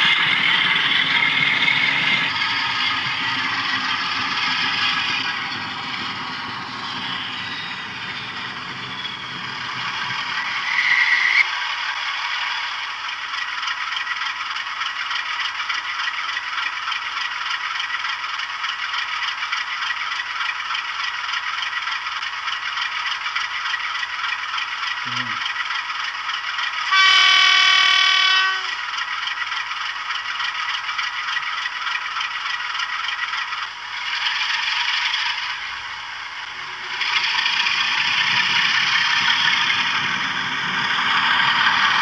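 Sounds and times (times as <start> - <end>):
model locomotive rumbling rattle: 0.0 - 42.0
diesel engine idling: 11.4 - 42.0.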